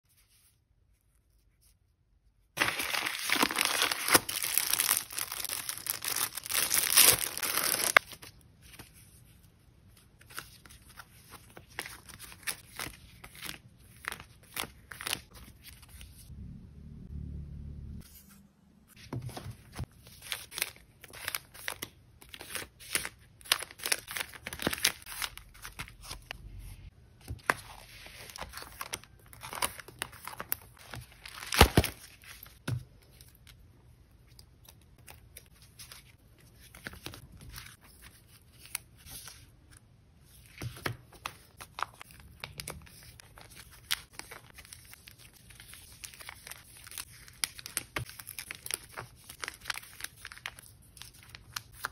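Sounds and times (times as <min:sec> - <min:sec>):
plastic sleeves crinkling: 0:02.6 - 0:08.9, 0:40.8 - 0:51.9.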